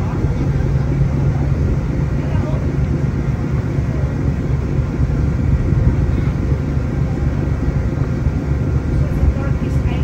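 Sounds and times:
ferry engines rumbling: 0.0 - 10.0.

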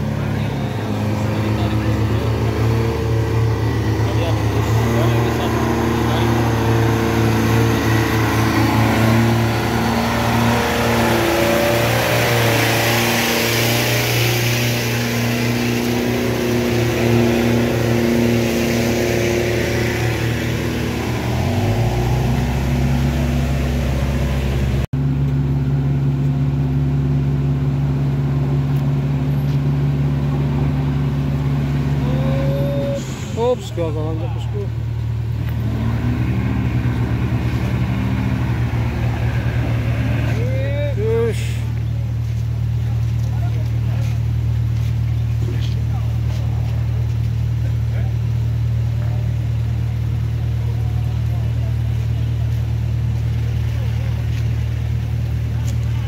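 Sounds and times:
diesel engines under load: 0.0 - 56.0
minibus engine running: 0.0 - 56.0.

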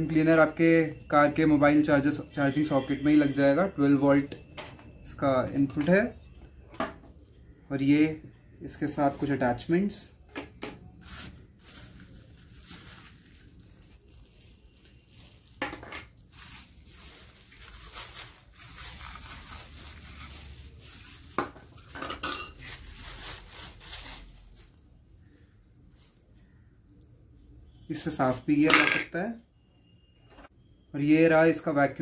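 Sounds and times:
plastic bags crinkling: 10.8 - 25.2.

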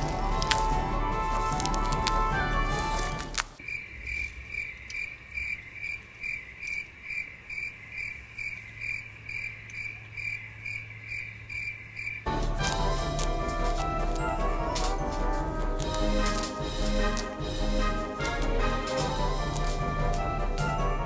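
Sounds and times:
cricket chirping: 3.6 - 12.3.

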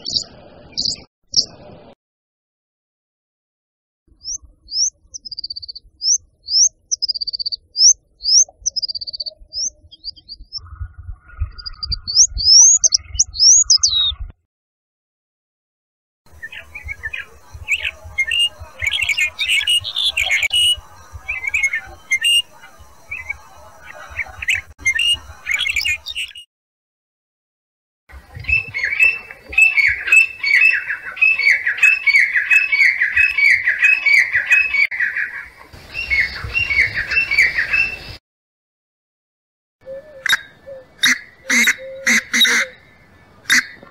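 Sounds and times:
lark singing: 4.2 - 14.2, 16.3 - 26.4, 28.3 - 38.2, 39.8 - 43.9
francolin calling shrill notes: 39.9 - 42.8.

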